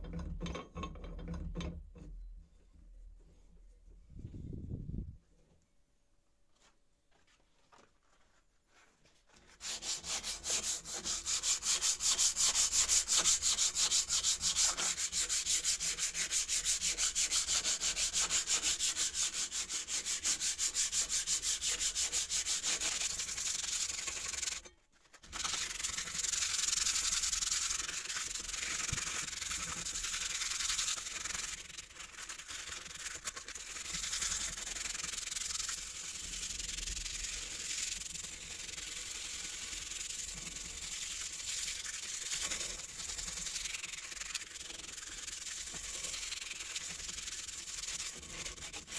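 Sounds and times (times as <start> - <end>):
sandpaper rubbing on metal: 9.4 - 48.9.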